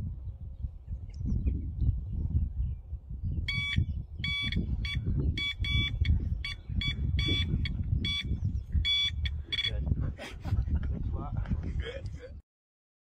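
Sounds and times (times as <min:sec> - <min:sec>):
bite alarm beeping: 0:03.5 - 0:09.9.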